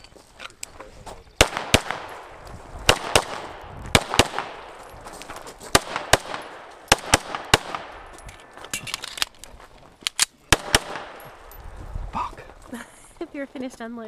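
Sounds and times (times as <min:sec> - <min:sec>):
pistol shots with echo: 0:01.4 - 0:04.9, 0:05.7 - 0:08.1, 0:10.5 - 0:11.4.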